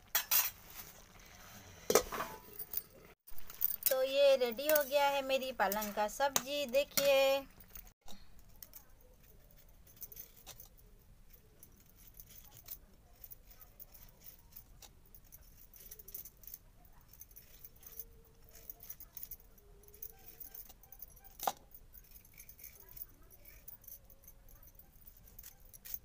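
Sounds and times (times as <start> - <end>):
bangles jingling: 2.2 - 26.0.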